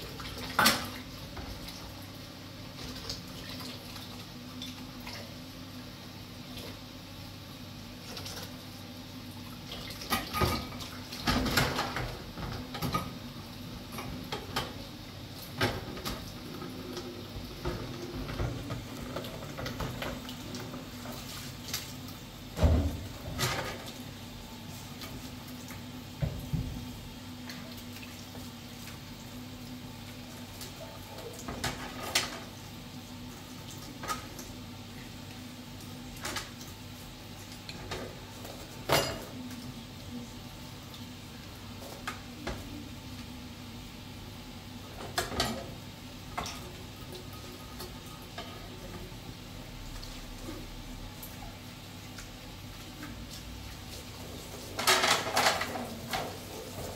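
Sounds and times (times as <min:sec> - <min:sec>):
dishes clattering: 0:54.8 - 0:56.4.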